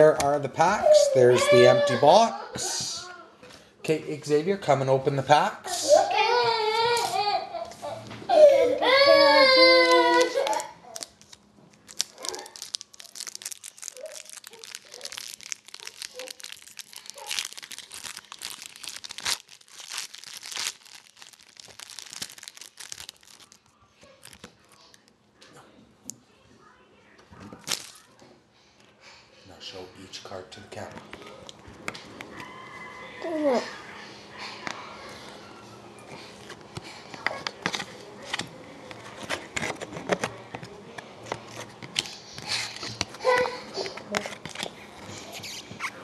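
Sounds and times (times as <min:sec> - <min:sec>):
cards flipped and shuffled by hand: 0:09.9 - 0:25.1, 0:36.2 - 0:46.0
foil wrapper crinkling: 0:09.9 - 0:25.2, 0:27.6 - 0:28.2.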